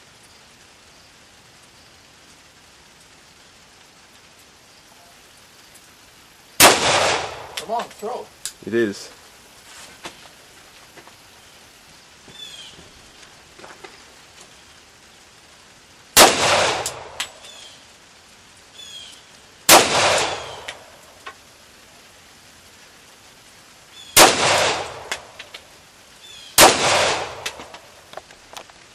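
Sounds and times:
pistol shots with echo: 6.6 - 7.7, 16.2 - 17.4, 19.7 - 20.9, 24.2 - 25.3, 26.6 - 27.9.

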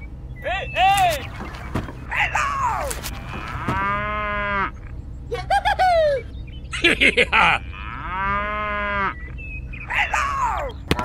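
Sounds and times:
squeaky chirping calls: 0.0 - 8.0, 8.8 - 10.9
cow mooing: 2.1 - 4.9, 7.6 - 9.2.

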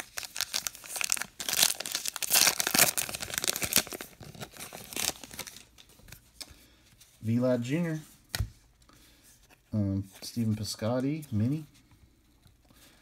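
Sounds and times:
wrapper tearing and crinkling: 0.0 - 5.8.

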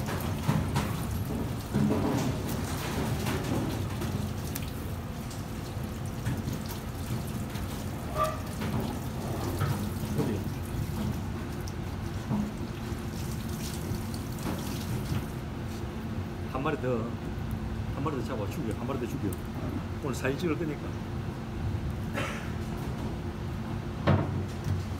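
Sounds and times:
water running from faucet: 0.0 - 11.8, 12.4 - 15.4.

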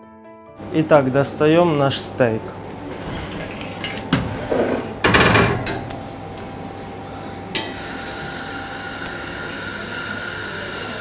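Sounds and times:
metal tongs scraping on grill: 3.0 - 6.0
steak sizzling: 5.8 - 7.1.

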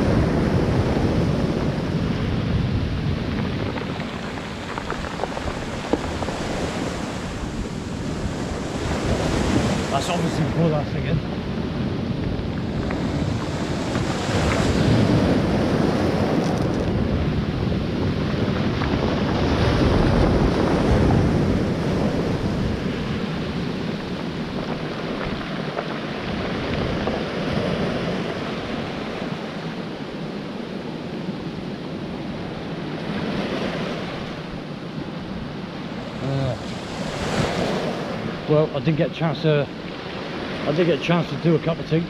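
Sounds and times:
surf breaking on pebble beach: 0.0 - 29.9
wind buffeting microphone: 0.0 - 42.0.

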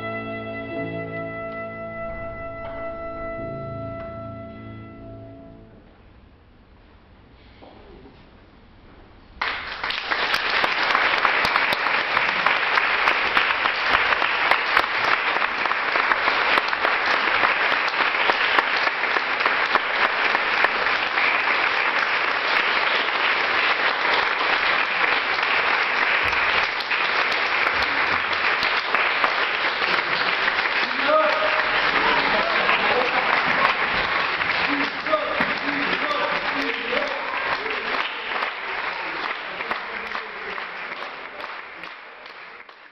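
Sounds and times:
audience applauding: 9.4 - 42.9.

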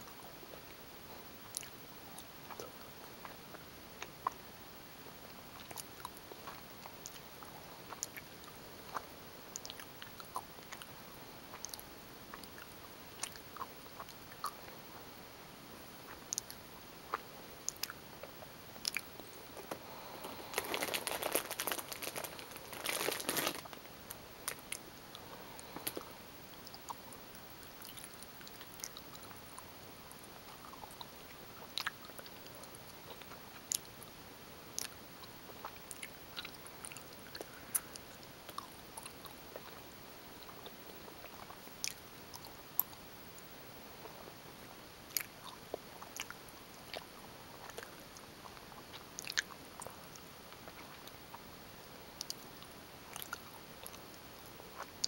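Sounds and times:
person chewing gummy candy: 16.1 - 29.3, 30.5 - 33.9, 45.1 - 48.0, 48.7 - 51.1, 53.1 - 54.0.

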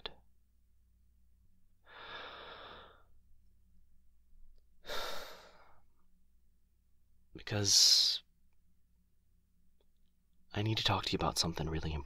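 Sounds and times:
man breathing: 1.8 - 3.2, 4.8 - 5.9.

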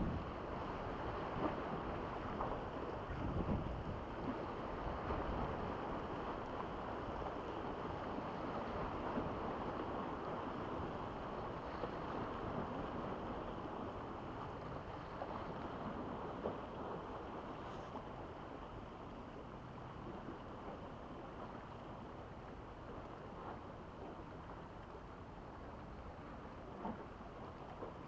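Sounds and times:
wind on microphone: 0.0 - 6.5.

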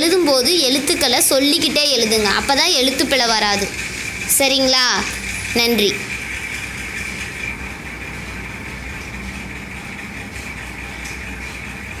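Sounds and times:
background hum with hiss: 0.0 - 12.0.

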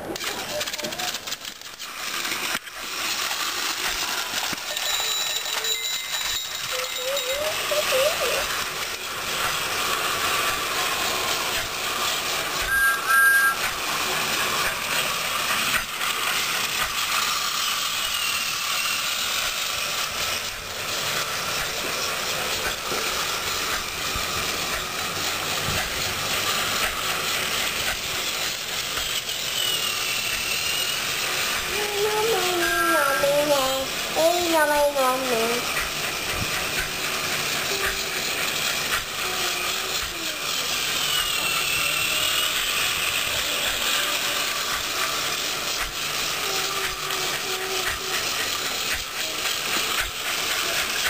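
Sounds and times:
toy train motor whirring and rattling: 0.0 - 51.0
short beep: 12.7 - 13.6.

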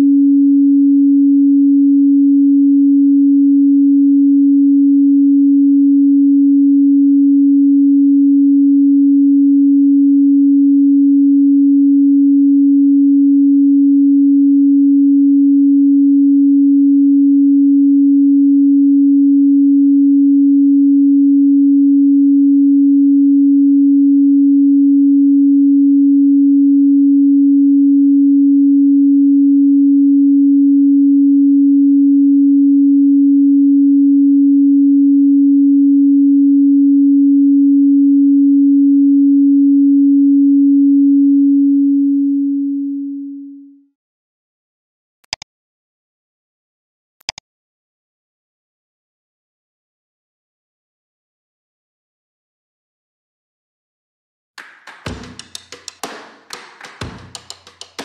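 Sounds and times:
pure sine tone: 0.0 - 44.0.

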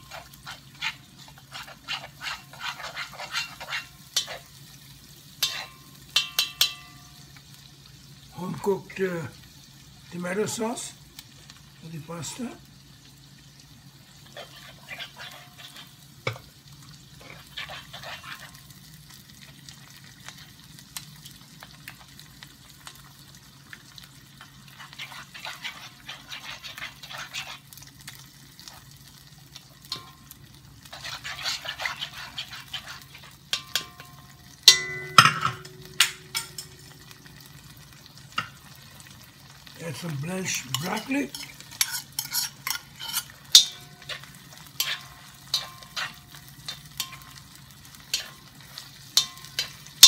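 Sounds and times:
metal spoon scraping a wok: 0.0 - 4.6, 5.4 - 6.9, 14.2 - 16.4, 17.2 - 18.7, 24.7 - 27.7, 30.8 - 34.1, 40.5 - 50.0
sauce sizzling in a wok: 0.0 - 50.0
spoon knocking on ringing wok: 5.4 - 7.2, 29.9 - 30.3, 33.5 - 36.9, 41.3 - 44.2, 44.8 - 47.4, 49.2 - 49.8.

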